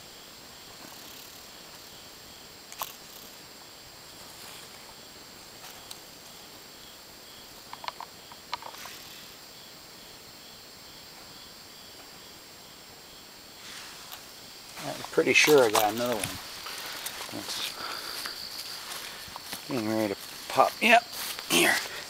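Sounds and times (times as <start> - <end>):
night insects chirping: 0.0 - 22.0
camera handling clicks and rustles: 7.7 - 8.9.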